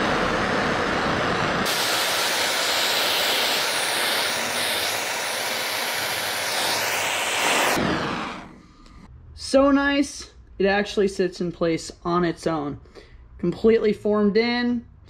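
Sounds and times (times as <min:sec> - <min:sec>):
gas torch hissing: 0:00.0 - 0:08.8.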